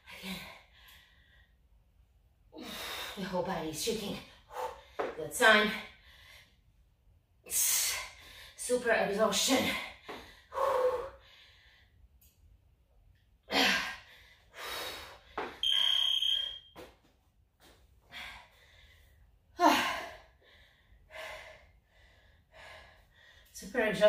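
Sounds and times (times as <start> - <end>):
woman breathing hard: 9.8 - 12.0, 13.5 - 15.6, 18.0 - 23.5
high electronic beep: 15.6 - 16.8.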